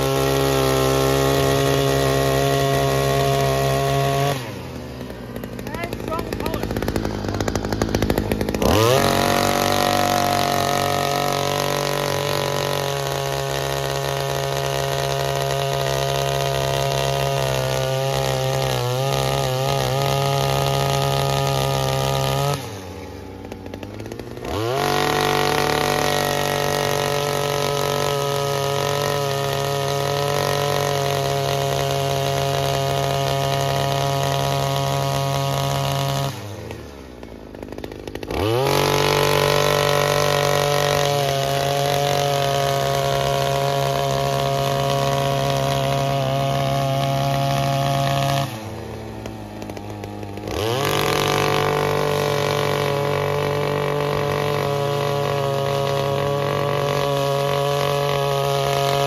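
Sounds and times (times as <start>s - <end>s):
earth auger engine revving: 0.0s - 59.0s.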